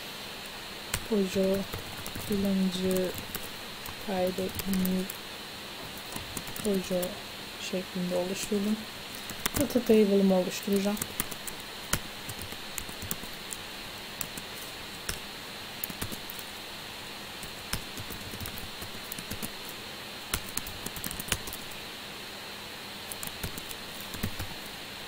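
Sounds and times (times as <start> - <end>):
steady background hiss: 0.0 - 25.0
keyboard typing: 0.9 - 5.2, 5.9 - 7.2, 8.4 - 9.9, 10.6 - 13.6, 14.2 - 15.2, 15.8 - 16.5, 17.4 - 21.8, 23.1 - 24.6.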